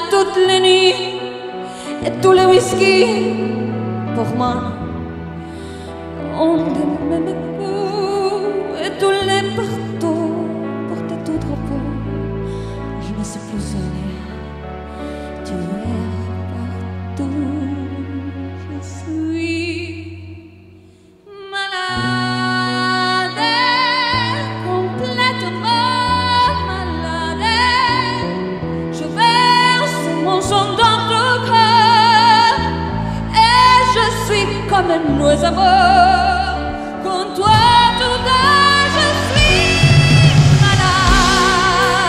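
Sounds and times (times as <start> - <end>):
woman singing with vibrato: 0.0 - 4.9, 6.2 - 12.3, 21.3 - 42.0
big band saxophones and brass: 37.5 - 42.0.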